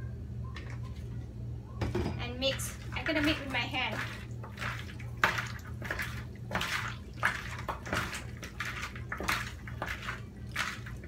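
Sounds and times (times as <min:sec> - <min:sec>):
wet squelches of hand mixing: 0:02.4 - 0:11.0.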